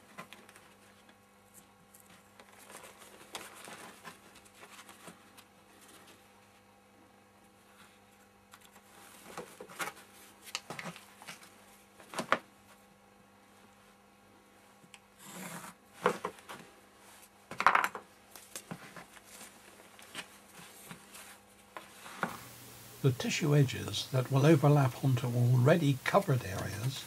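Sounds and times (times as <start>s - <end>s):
faint steady hum: 0.0s - 27.0s
papery rustling: 1.6s - 6.3s.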